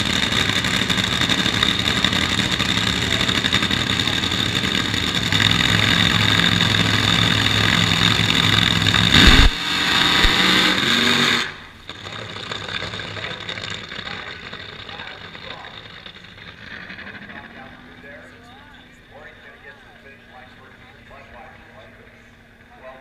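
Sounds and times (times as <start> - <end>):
engine running: 0.0 - 23.0
open-air background noise: 0.0 - 23.0
loud thump: 9.2 - 9.6.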